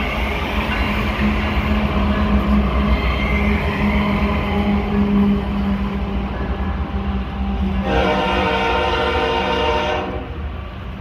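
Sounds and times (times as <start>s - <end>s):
freight train rumbling on rails: 0.0s - 11.0s
train horn blast: 7.8s - 10.4s.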